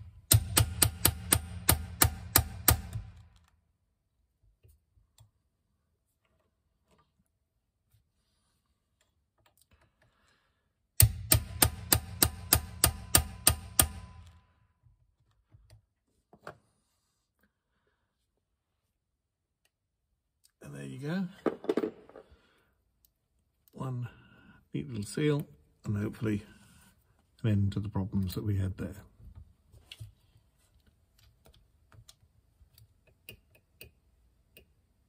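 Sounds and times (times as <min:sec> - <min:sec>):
hammer tapping on metal drift: 0:00.3 - 0:03.1, 0:11.0 - 0:14.3.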